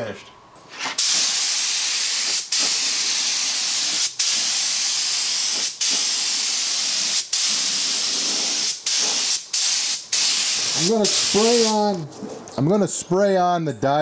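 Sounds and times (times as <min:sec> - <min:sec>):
spray gun hissing: 0:01.0 - 0:11.9.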